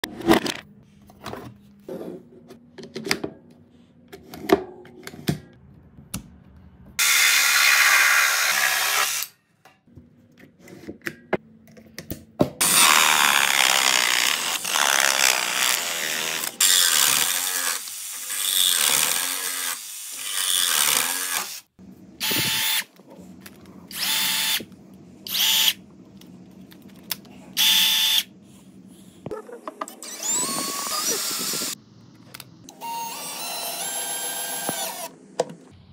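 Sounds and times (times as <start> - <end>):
power saw cutting pipe: 7.0 - 9.3, 12.6 - 22.9
drill driver drilling into board: 12.6 - 22.9, 23.9 - 24.7, 25.3 - 25.8, 27.6 - 28.3, 30.0 - 31.8, 32.7 - 35.1.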